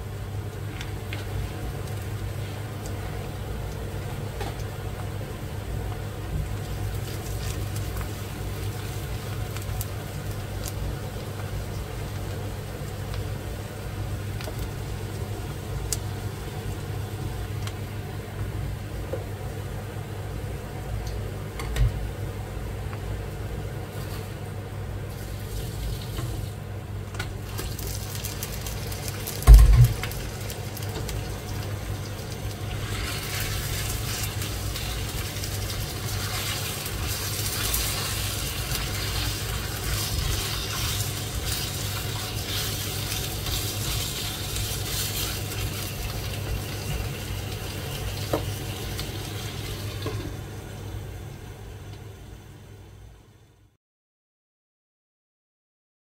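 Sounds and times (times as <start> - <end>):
onion frying in oil: 0.0 - 52.8
steady low hum: 28.1 - 53.8
heavy thump: 29.5 - 30.0.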